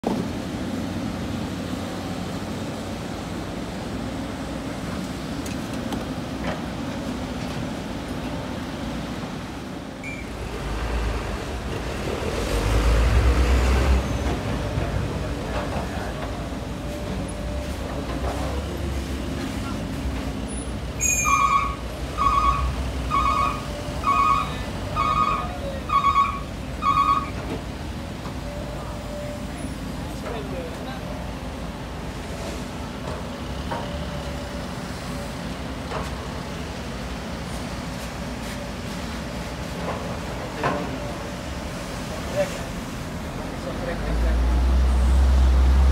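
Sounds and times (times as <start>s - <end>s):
excavator diesel engine running: 0.1s - 45.9s
reversing alarm beeping: 21.0s - 27.4s.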